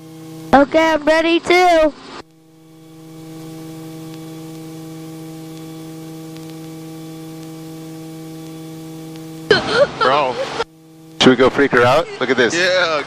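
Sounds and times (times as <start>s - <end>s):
electrical hum with hiss: 0.0s - 13.0s
faint ticks: 6.3s - 7.6s.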